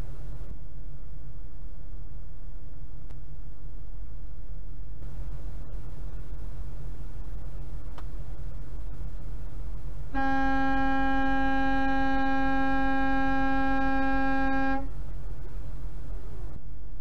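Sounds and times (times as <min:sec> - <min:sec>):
low steady rumble: 0:00.0 - 0:17.0
truck air horn blast: 0:10.1 - 0:15.0.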